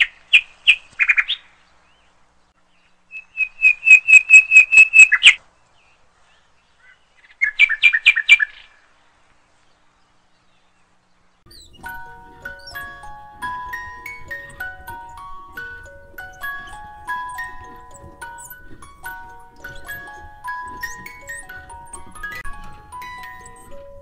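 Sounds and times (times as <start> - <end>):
bird chirping rapidly: 2.6 - 5.4, 6.7 - 8.8, 11.3 - 24.0.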